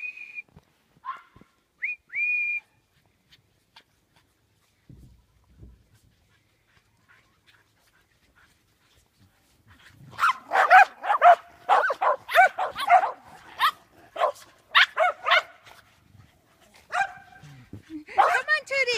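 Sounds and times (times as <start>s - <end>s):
dog barking: 10.2s - 15.6s, 16.9s - 17.4s, 18.2s - 18.5s.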